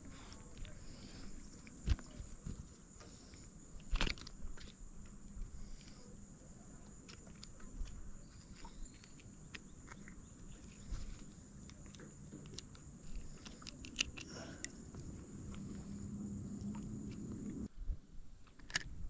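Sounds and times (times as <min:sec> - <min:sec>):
small clicks and ticks: 0:06.8 - 0:15.8.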